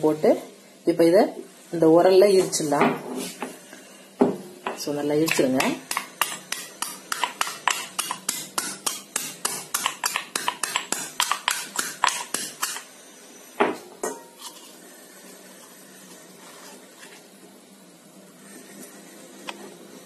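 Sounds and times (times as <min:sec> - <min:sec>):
pestle pounding in stone mortar: 0:05.3 - 0:12.8.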